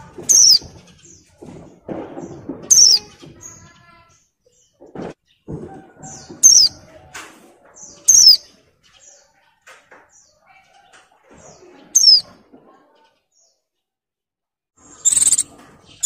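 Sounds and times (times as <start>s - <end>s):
bird soft chirps: 14.9s - 16.0s
bird sharp descending calls: 15.0s - 15.5s.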